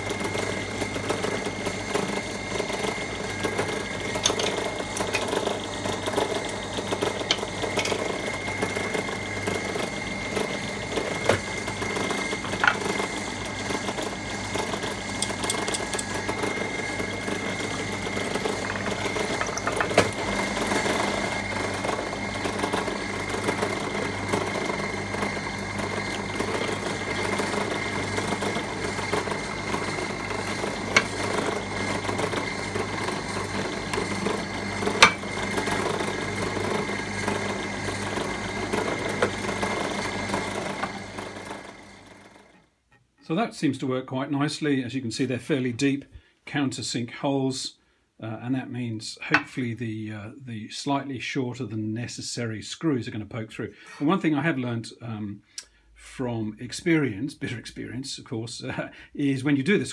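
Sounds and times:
drill press humming and whining: 0.0s - 43.0s.

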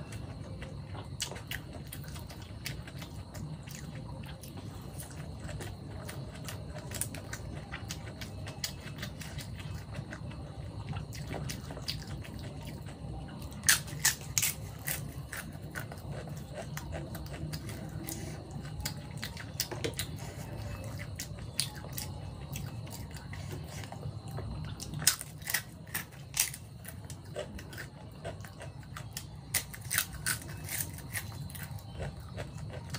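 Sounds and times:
crisp snack crunching: 24.8s - 32.9s.

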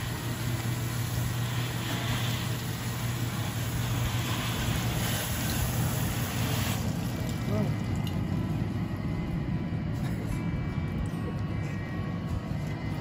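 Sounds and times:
hose nozzle spraying water: 0.0s - 7.4s
low hum: 0.0s - 13.0s.

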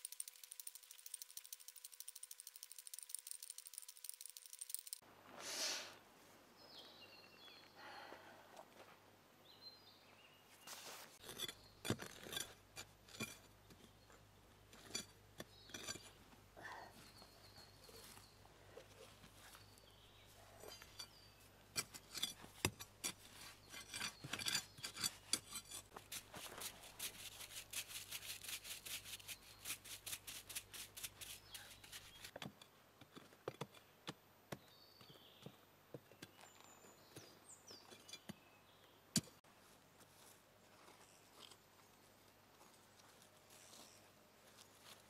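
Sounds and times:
soil scraping and crunching: 10.6s - 16.2s, 17.0s - 32.3s.

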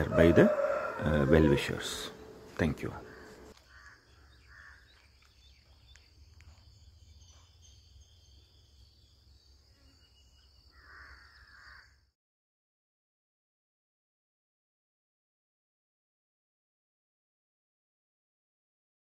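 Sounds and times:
faint bird calls: 0.0s - 8.5s, 9.7s - 12.1s.

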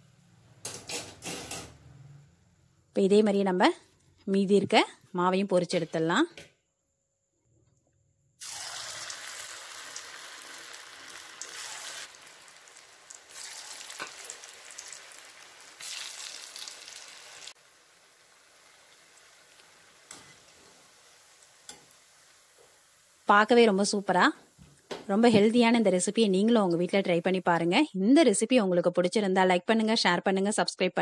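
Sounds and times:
batter sizzling in hot oil: 8.4s - 24.6s.

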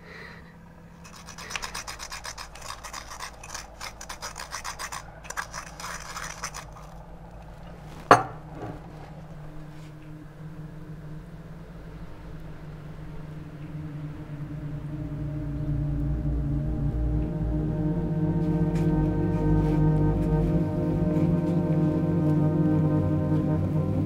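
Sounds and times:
spoon scraping in sugar: 1.0s - 8.1s.

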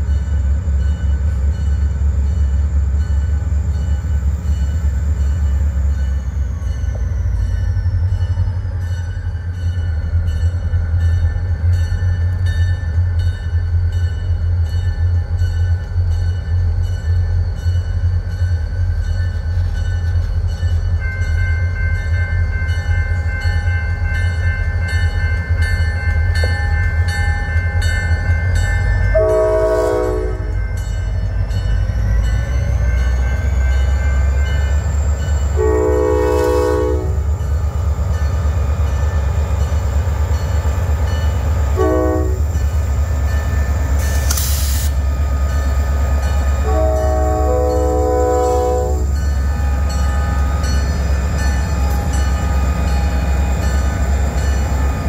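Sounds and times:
train rumbling past: 0.0s - 55.0s
locomotive air horn: 29.1s - 30.6s, 35.6s - 37.2s, 41.8s - 42.5s, 46.6s - 49.1s.

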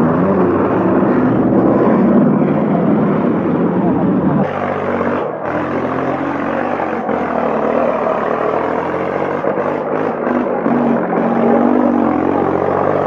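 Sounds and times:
old tractor engine running: 0.0s - 13.0s.

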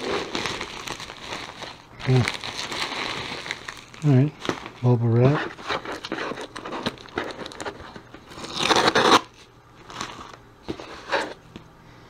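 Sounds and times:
tape tearing rasp: 5.4s - 9.4s
fingers scratching packing tape: 8.4s - 9.4s.

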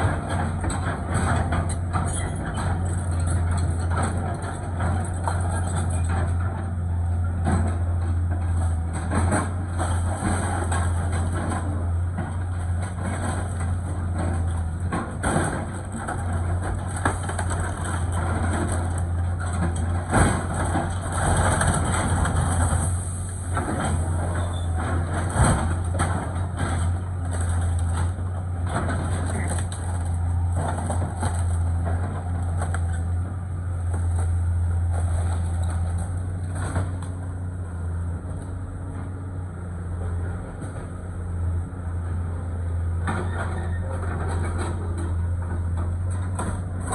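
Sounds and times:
excavator diesel engine running: 0.0s - 46.9s
timber cracking and crunching: 12.4s - 37.6s.

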